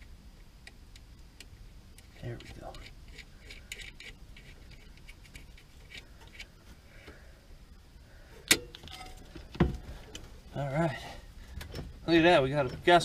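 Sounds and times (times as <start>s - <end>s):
small metallic clicks and rattles: 0.6s - 6.5s.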